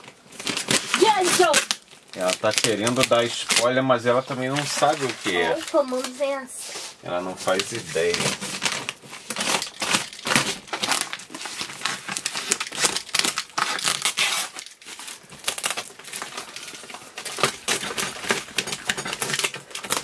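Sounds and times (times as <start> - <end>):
plastic wrap crinkling: 0.0 - 20.0.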